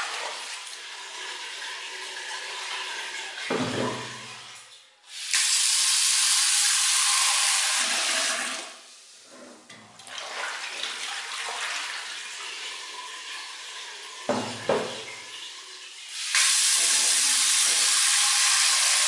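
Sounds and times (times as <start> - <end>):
tap water running into pot: 0.0 - 4.6, 5.2 - 8.8, 9.7 - 19.0
water sloshing in pot: 9.7 - 15.4.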